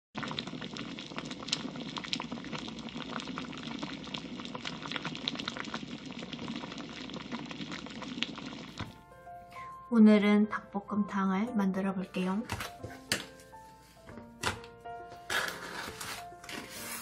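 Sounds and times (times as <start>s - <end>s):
bubbles popping: 0.2s - 9.0s
sauce bubbling in a pot: 0.2s - 9.2s.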